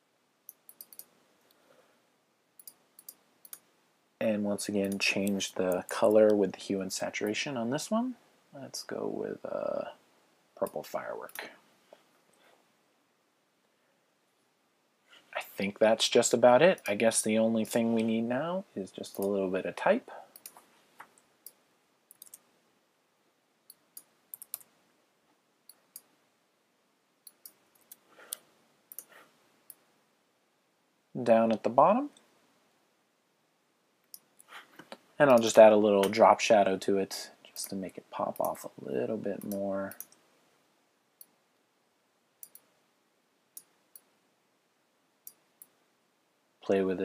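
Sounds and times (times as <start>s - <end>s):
low room hiss: 0.0s - 47.0s
keyboard and mouse clicks: 0.5s - 1.1s, 2.6s - 3.7s, 20.3s - 22.5s, 23.7s - 24.7s, 27.3s - 29.8s, 42.4s - 42.7s.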